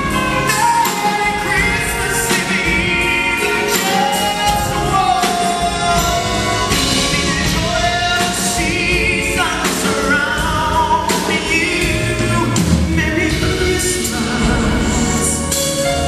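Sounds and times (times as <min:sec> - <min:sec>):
drum hits: 0:00.0 - 0:16.0
instrumental accompaniment: 0:00.0 - 0:16.0
man singing a slow ballad: 0:00.0 - 0:16.0.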